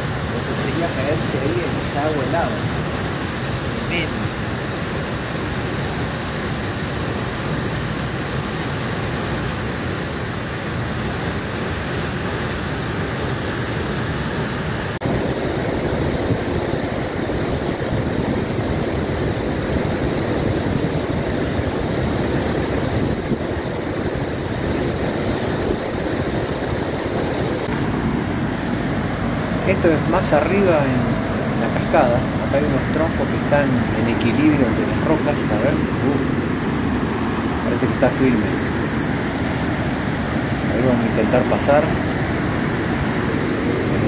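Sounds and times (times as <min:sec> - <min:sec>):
waterfall rushing over rock: 0:00.0 - 0:15.0, 0:26.3 - 0:44.0.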